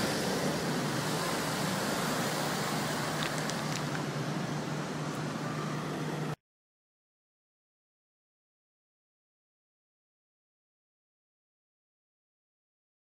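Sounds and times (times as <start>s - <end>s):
street traffic hiss and hum: 0.0s - 6.4s.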